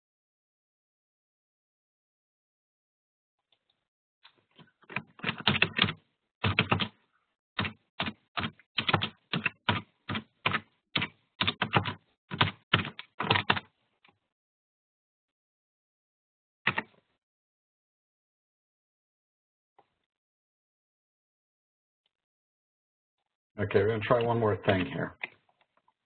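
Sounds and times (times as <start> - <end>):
typing on keyboard: 4.9 - 6.9, 7.6 - 13.7, 16.7 - 16.9.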